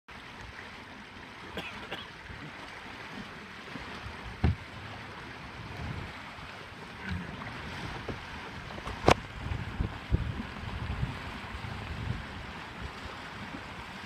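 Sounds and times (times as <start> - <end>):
water rushing along boat hull: 0.1 - 14.0
loud thump on hull: 4.4 - 4.6, 8.8 - 9.3.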